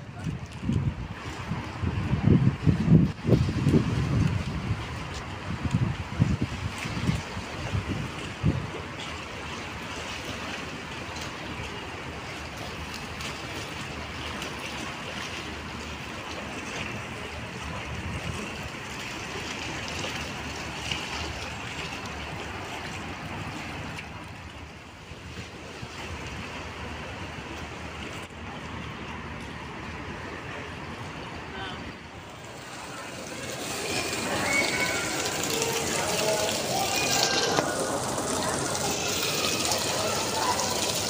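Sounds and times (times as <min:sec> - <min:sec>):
wind buffeting microphone: 0:00.0 - 0:10.1, 0:16.9 - 0:28.6
sea water washing on rocks: 0:00.0 - 0:41.0.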